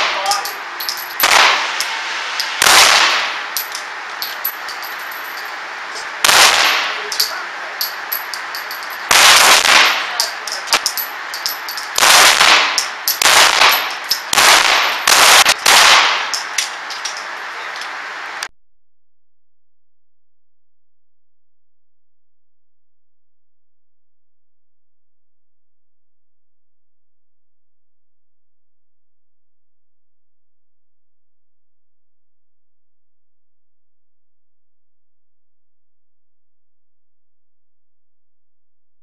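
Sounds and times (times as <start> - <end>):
pistol shots echoing indoors: 12.0 - 16.4.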